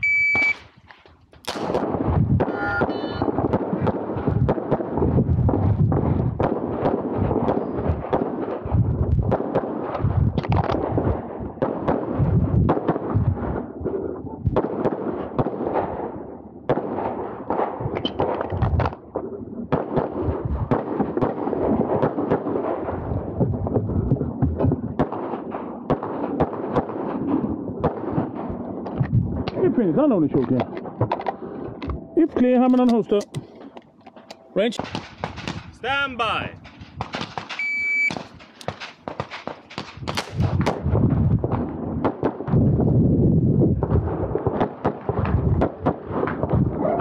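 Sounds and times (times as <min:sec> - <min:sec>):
handgun shots in rapid strings: 0:36.6 - 0:40.8.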